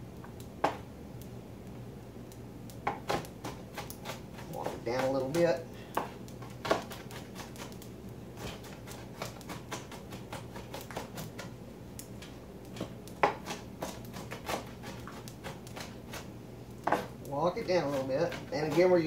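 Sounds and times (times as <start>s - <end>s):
knife chopping on cutting board: 2.9s - 7.8s, 8.4s - 11.5s, 12.2s - 19.0s.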